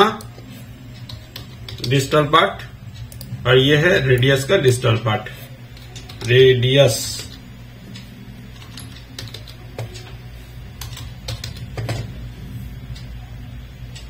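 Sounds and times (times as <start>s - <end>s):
steady low hum: 0.0s - 14.0s
keyboard typing: 1.0s - 2.3s, 8.0s - 10.2s, 10.8s - 12.2s.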